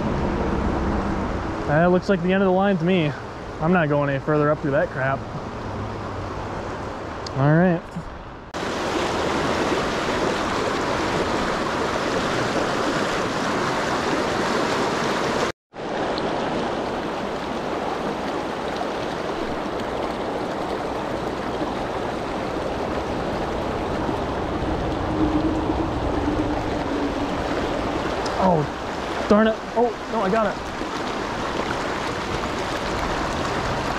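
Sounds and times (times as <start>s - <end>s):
creek rushing over rocks: 8.6s - 33.9s.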